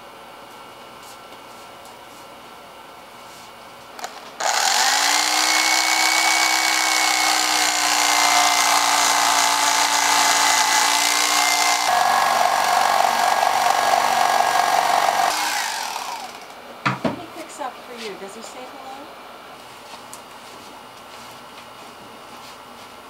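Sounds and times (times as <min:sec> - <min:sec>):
electric knife cutting foam: 0:04.0 - 0:16.6.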